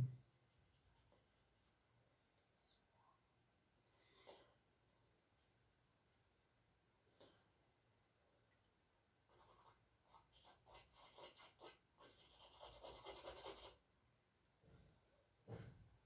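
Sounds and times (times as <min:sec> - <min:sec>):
charcoal scratching on canvas: 0:09.3 - 0:13.8.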